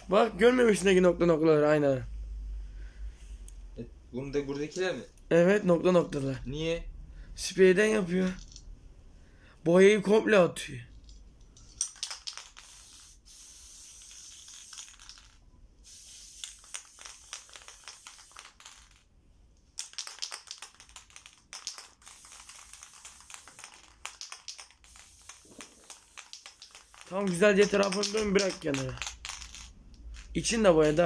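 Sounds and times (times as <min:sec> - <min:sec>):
spray can hissing: 0:11.9 - 0:18.8, 0:19.9 - 0:29.7.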